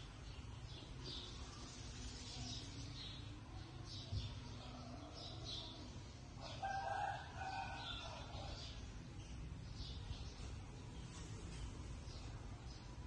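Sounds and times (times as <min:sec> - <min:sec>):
small birds chirping: 0:00.0 - 0:13.0
rooster crowing: 0:06.4 - 0:08.6.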